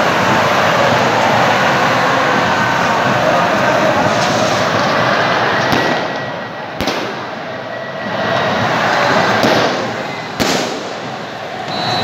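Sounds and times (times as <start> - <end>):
stadium crowd noise: 0.0 - 12.0
firecracker bangs: 5.6 - 7.4, 9.3 - 11.2.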